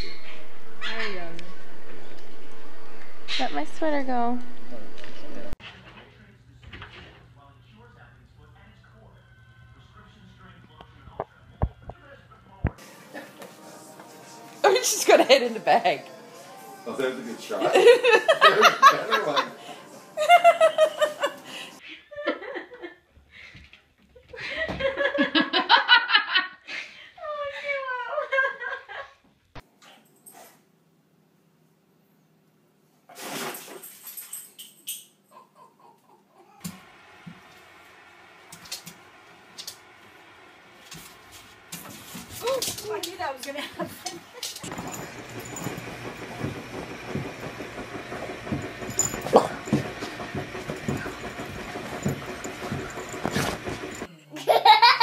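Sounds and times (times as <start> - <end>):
person laughing: 20.2 - 22.8
dog snuffling and rustling: 50.7 - 54.1.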